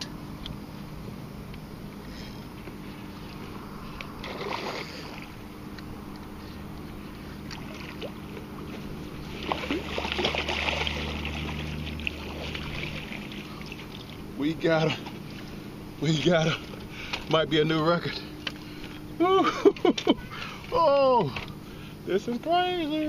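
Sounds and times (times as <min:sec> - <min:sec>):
low steady hum: 0:00.0 - 0:23.0
fish splashing at water surface: 0:04.2 - 0:05.4, 0:07.4 - 0:14.2.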